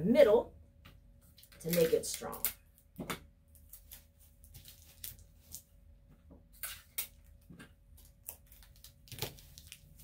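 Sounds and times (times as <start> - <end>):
paper and tape crackling: 1.2 - 5.8, 6.5 - 10.0.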